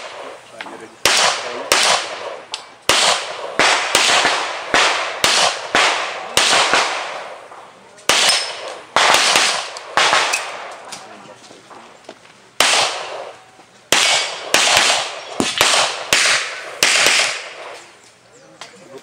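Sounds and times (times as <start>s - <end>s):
handgun shots echoing: 1.0s - 7.4s, 8.0s - 11.1s, 12.6s - 17.9s.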